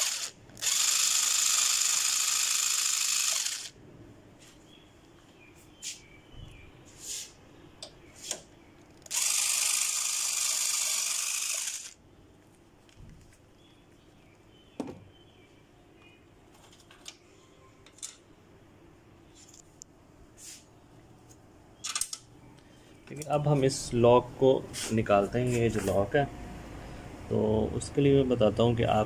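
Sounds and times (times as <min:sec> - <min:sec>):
loud noisy power tool burst: 0:00.0 - 0:03.8, 0:09.1 - 0:12.0.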